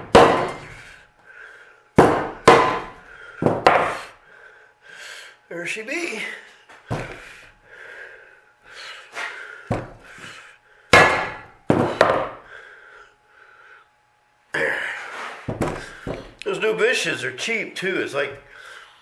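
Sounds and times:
metal part thudding on workbench: 15.5s - 16.2s.

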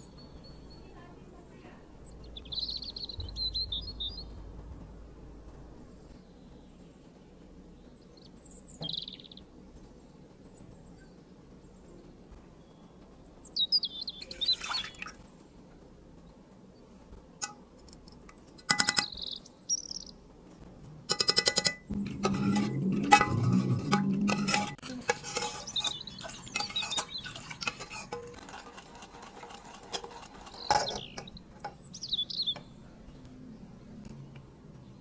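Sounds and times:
bird chirps: 0.0s - 4.5s, 7.7s - 9.5s, 11.8s - 15.2s, 18.8s - 20.2s, 25.6s - 27.6s, 30.4s - 33.3s
spoon scraping metal saucepan: 21.1s - 31.8s.

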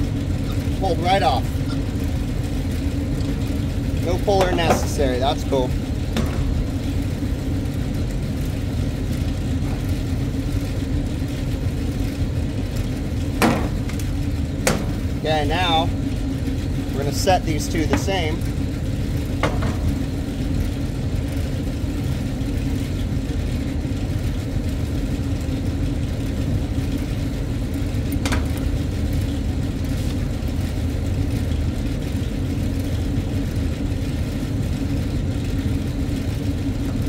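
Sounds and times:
hvac equipment drone: 0.0s - 37.0s.

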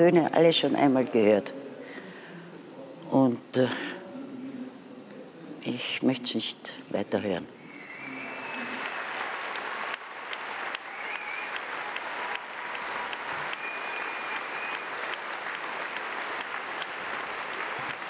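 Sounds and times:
audience applauding: 7.9s - 18.0s.

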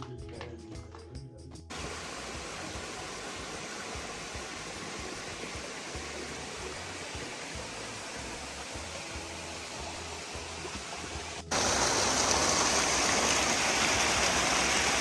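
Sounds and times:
creek and small waterfall rushing: 1.7s - 15.0s.

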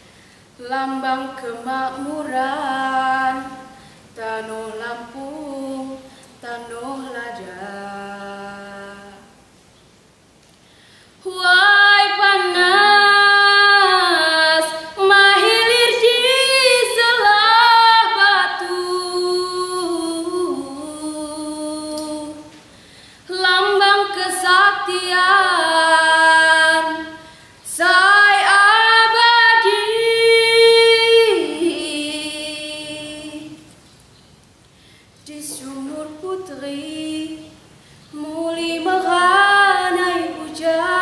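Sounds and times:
woman singing unaccompanied: 0.5s - 9.4s, 11.2s - 33.7s, 35.2s - 41.0s.

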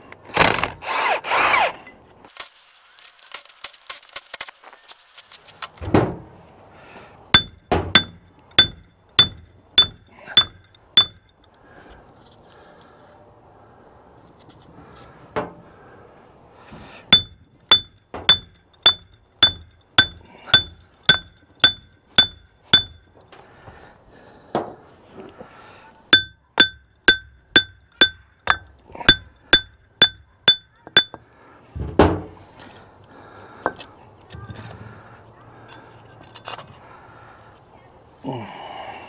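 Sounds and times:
hammer striking steel: 7.4s - 11.3s, 17.1s - 23.1s, 26.1s - 31.2s.

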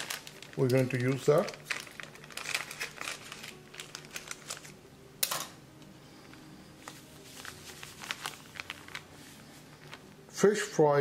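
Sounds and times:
paper packet crinkling: 0.0s - 4.8s, 6.2s - 10.2s.

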